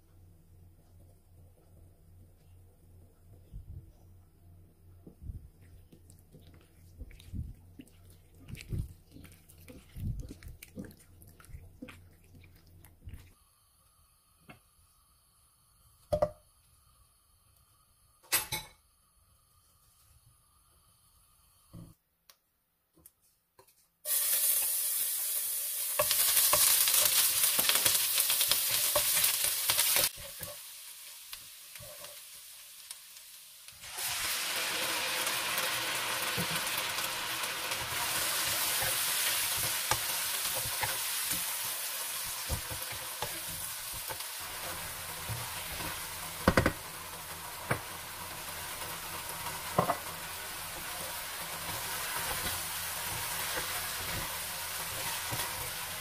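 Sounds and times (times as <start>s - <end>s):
food sizzling in a wok: 13.4s - 21.9s, 24.0s - 56.0s.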